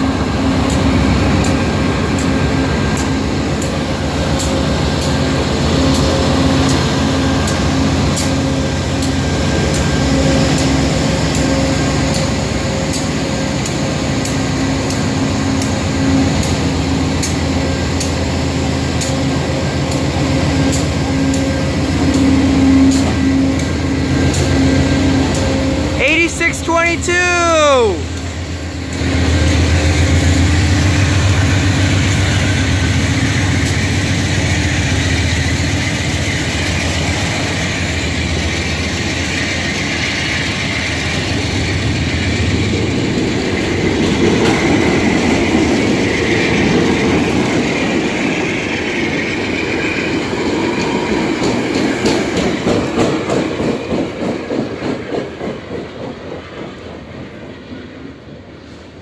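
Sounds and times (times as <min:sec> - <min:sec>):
train wheels rumbling on rails: 0:00.0 - 0:59.0
wheels clacking over rail joints: 0:28.9 - 0:57.5.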